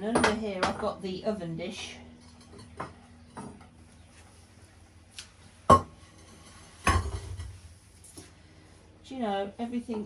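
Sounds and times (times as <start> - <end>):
ceramics knocking together: 5.7 - 6.0.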